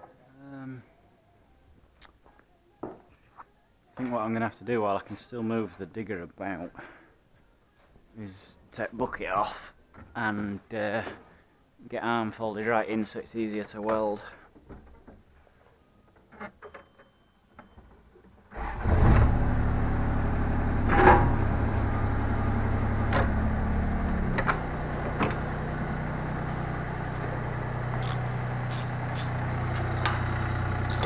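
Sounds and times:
diesel engine starting and idling: 18.5 - 31.0
small clicks: 28.0 - 30.2.

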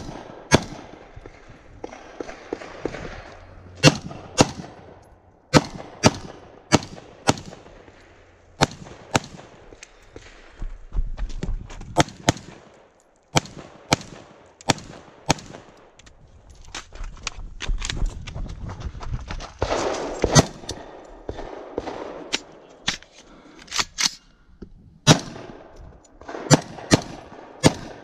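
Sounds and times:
rifle shots: 0.0 - 10.5, 12.0 - 15.9, 19.6 - 22.6, 25.0 - 28.0.

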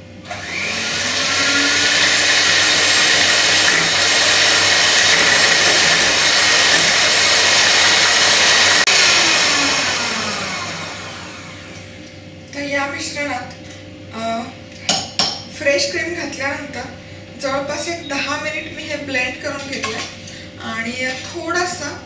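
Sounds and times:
electric mixer whining: 0.2 - 12.0.

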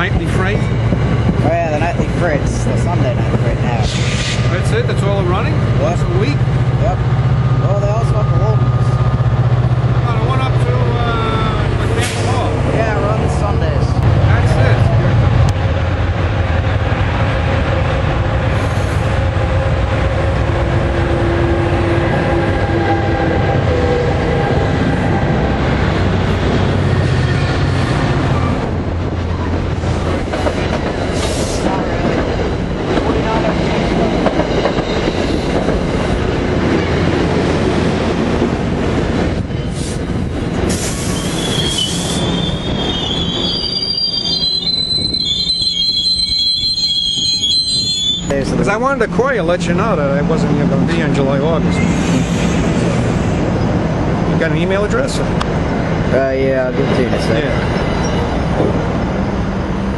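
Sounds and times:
train rumbling on rails: 0.0 - 59.9
wheel squeals: 41.0 - 48.4.

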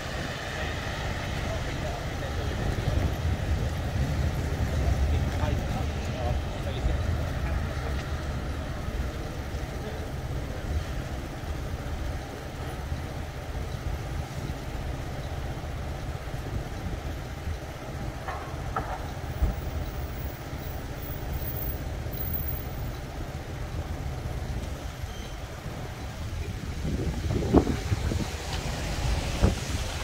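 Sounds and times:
low rumble of traffic: 0.0 - 30.0
faint squeaks: 25.0 - 25.5.

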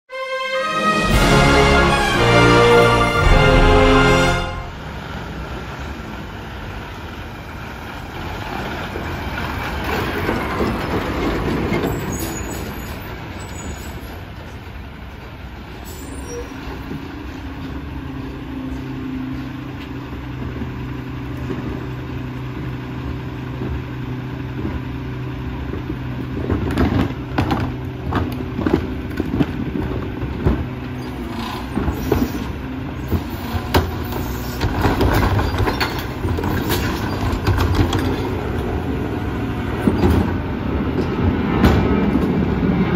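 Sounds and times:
garbage truck engine: 0.1 - 42.9
hydraulics running: 0.7 - 6.8, 16.0 - 41.2
carts clanking and banging: 8.5 - 14.6, 25.7 - 42.4.

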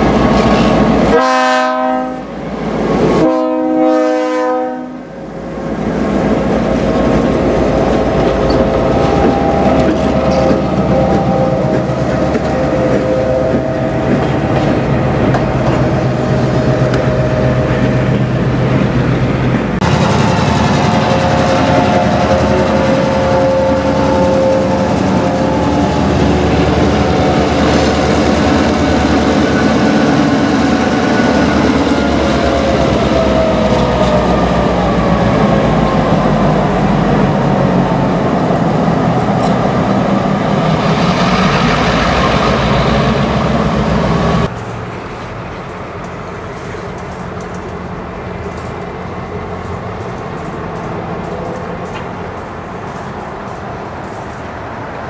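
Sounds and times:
diesel locomotive passing: 0.0 - 55.0
wheels on rail: 0.0 - 55.0.

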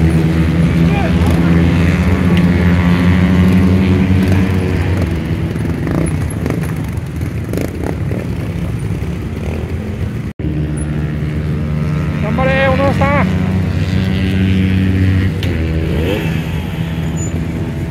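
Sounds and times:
motorcycle engine running: 0.0 - 17.9.

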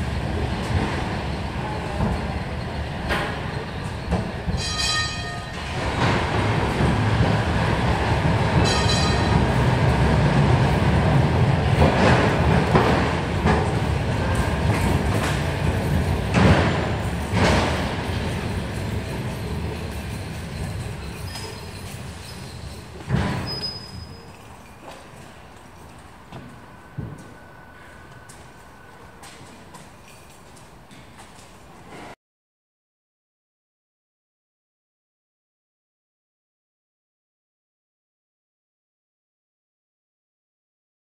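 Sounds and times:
tram wheels rumbling on track: 0.0 - 32.2
high squeals: 19.3 - 24.7.

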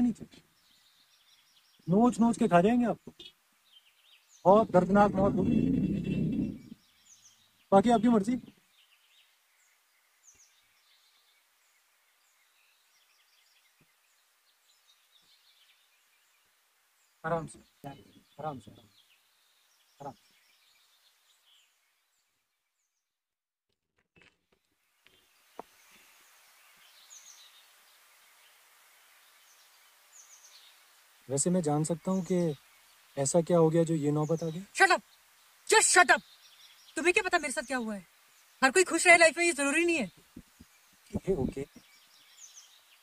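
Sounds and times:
faint high bird chirps: 0.0 - 16.5
low hiss: 0.0 - 22.9, 24.8 - 43.0
faint birds chirping: 0.0 - 23.4, 24.4 - 43.0
soft low thumps: 4.5 - 6.8, 40.2 - 41.8.

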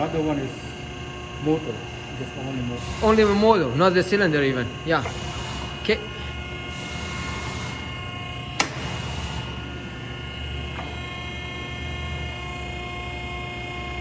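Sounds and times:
hydraulic pump humming and whining: 0.0 - 14.0
sharp click: 8.6 - 8.8.

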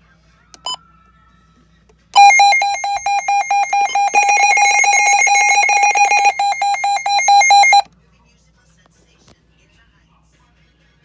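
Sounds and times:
pulsed alert tone: 2.2 - 7.8
rapid electronic alert beeping: 2.2 - 7.8.

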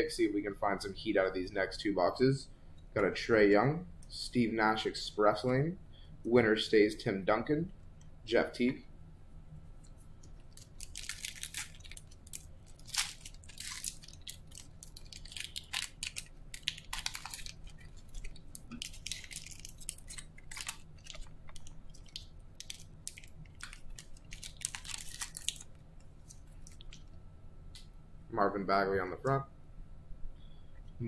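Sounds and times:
foil wrappers crinkling and ripping: 10.5 - 27.0.

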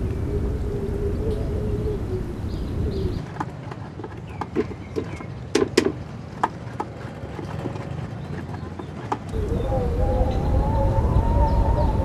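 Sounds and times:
faint bird chirps: 0.0 - 3.2, 9.3 - 12.0
low rumbling wash with hum: 0.0 - 3.2, 9.3 - 12.0.

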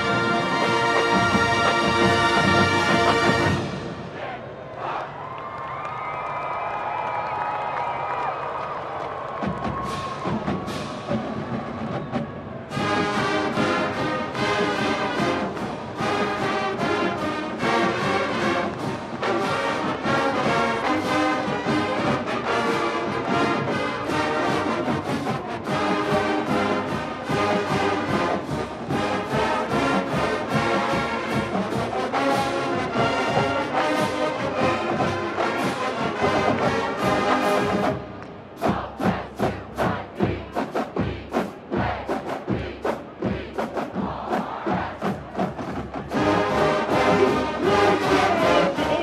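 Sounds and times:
marching drumline: 0.0 - 4.3, 8.5 - 49.0
brass section sustained chords: 12.7 - 37.9, 46.2 - 49.0.

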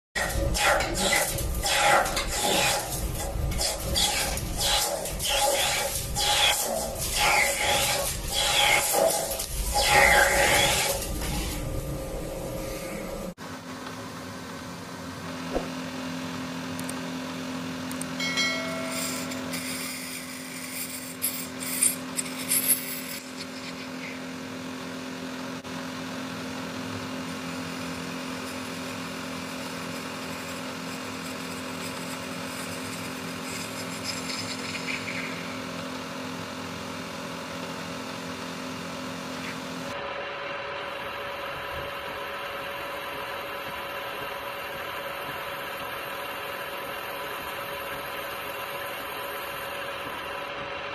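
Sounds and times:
router bit whining through acrylic: 0.2 - 11.6, 18.6 - 24.9, 27.0 - 35.8
high-pitched squeals from cutting: 3.9 - 11.0, 18.4 - 24.2.

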